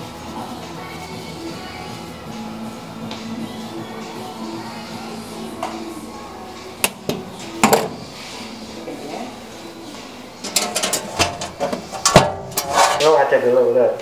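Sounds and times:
faint music: 0:00.0 - 0:14.0.

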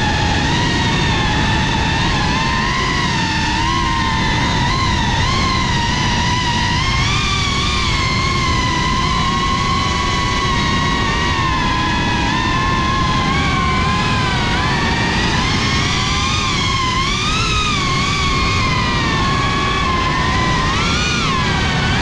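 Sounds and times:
drone motors whining: 0:00.0 - 0:22.0
wind rush: 0:00.0 - 0:22.0.

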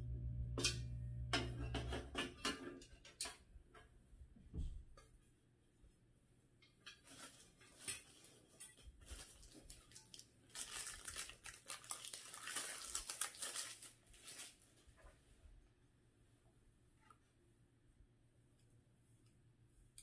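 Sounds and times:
plastic bag crinkling: 0:07.0 - 0:14.9.

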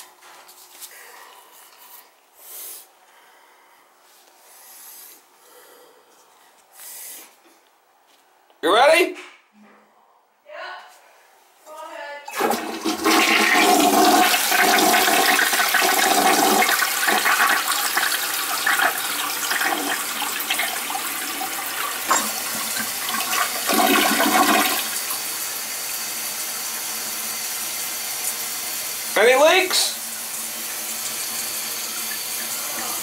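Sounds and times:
toilet flushing: 0:12.3 - 0:33.0
toilet tank refilling hiss: 0:12.3 - 0:33.0.

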